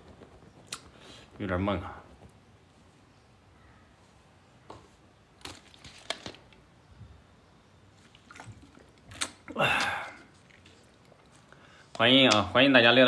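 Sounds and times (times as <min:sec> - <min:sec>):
man sighing loudly: 0:09.5 - 0:10.3.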